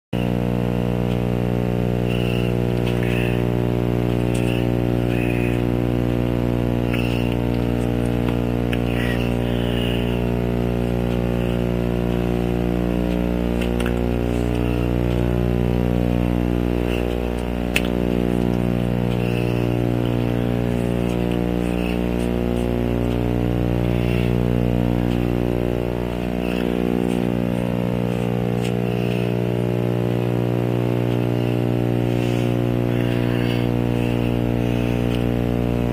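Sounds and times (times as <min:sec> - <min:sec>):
faint blips: 0:00.2 - 0:35.9
low electrical hum: 0:00.2 - 0:35.9
click: 0:16.9 - 0:19.5.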